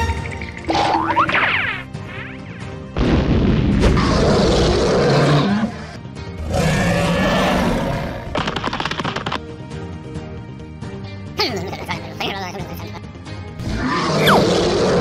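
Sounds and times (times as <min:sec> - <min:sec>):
background music: 0:00.0 - 0:15.0
cartoon monster roars: 0:13.6 - 0:15.0.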